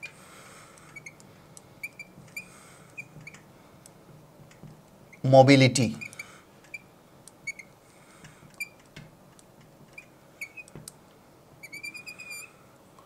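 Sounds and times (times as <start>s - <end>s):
marker squeaking on board: 1.8s - 3.4s, 5.1s - 5.3s, 7.4s - 7.7s, 10.0s - 10.8s, 11.6s - 12.5s.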